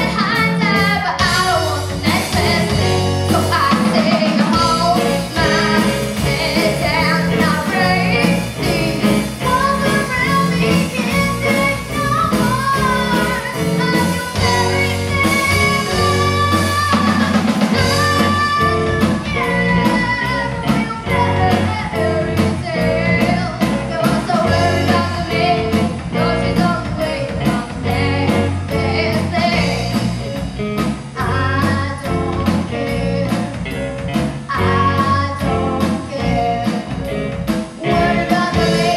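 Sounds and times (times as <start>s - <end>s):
drum kit beat: 0.0s - 38.9s
electric bass: 0.0s - 38.9s
girl singing lead: 0.0s - 38.9s.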